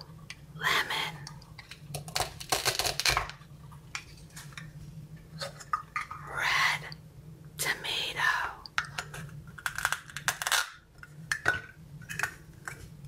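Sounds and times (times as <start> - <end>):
faint low hum: 0.0 - 13.0
plastic toy food clicking and knocking: 8.8 - 12.8.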